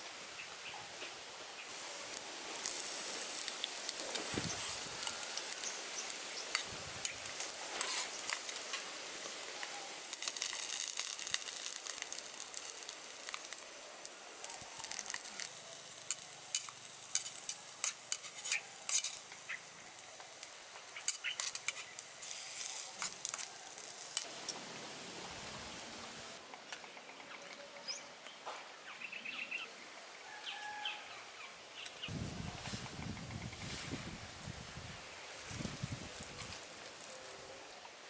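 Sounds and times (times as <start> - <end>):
food sizzling in a pan: 1.6 - 24.3
sharp crackles and taps: 2.1 - 24.3.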